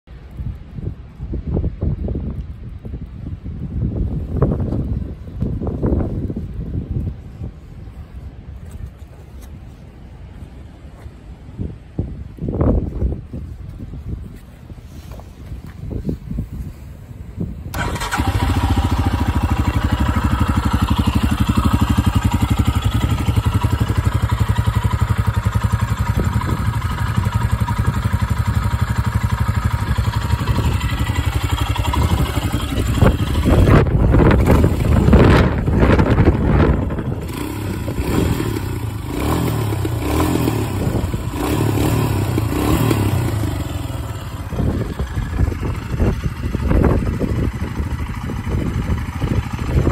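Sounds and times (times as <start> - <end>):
motorcycle engine idling: 17.7 - 49.9.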